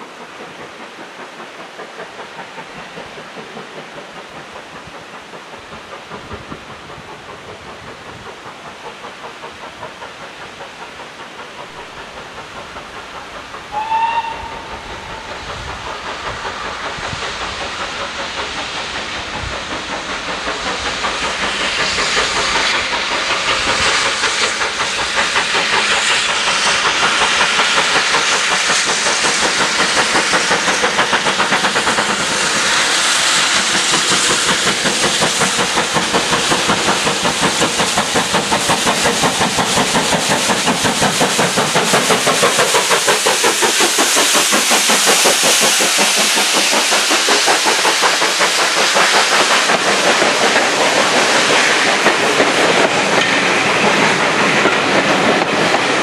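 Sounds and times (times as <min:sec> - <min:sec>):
steam locomotive exhaust beats: 0:00.0 - 0:56.0
steam train whistle: 0:13.7 - 0:15.4.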